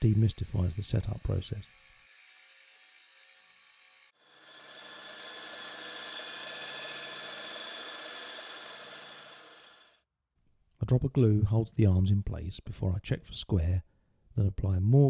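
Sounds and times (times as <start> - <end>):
bandsaw cutting plywood: 0.0 - 10.0.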